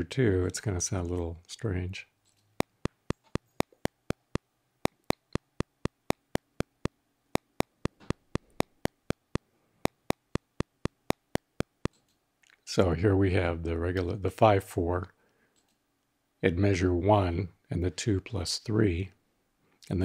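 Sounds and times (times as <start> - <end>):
metronome clicks: 2.6 - 12.0.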